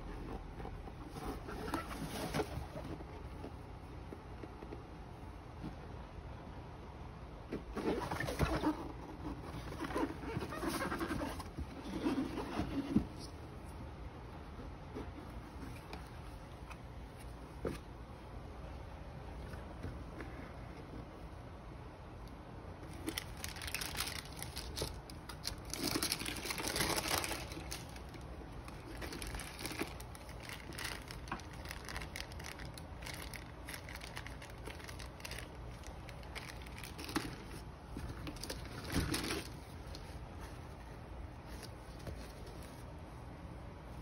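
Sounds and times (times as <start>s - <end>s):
paper and plastic bag crinkling: 22.8s - 40.2s.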